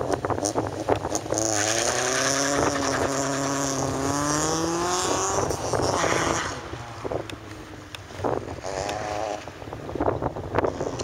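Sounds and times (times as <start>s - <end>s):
car engine revving hard: 0.6s - 7.3s, 8.6s - 9.5s.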